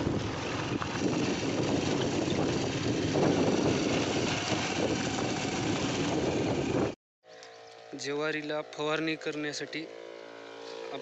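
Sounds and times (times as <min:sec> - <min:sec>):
wind on microphone: 0:00.0 - 0:07.0
motorcycle riding: 0:00.0 - 0:11.0.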